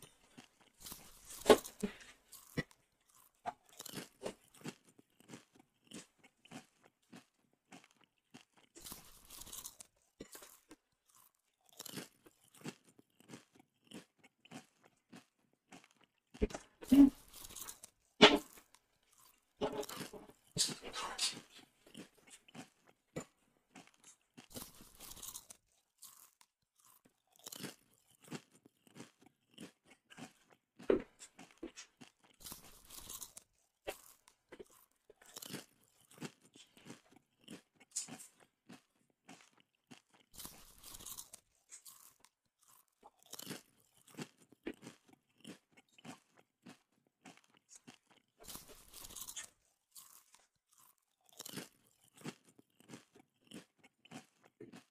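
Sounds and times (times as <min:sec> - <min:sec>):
person chewing crunchy food: 0:00.0 - 0:54.9
breathy sounds: 0:01.2 - 0:02.6.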